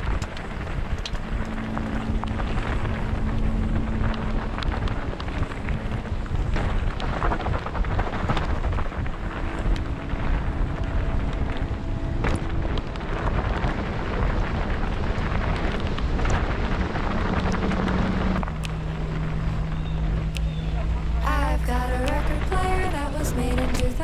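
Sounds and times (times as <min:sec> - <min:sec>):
bike tyres rolling on dirt: 0:00.0 - 0:24.0
wind rushing over microphone: 0:00.0 - 0:24.0.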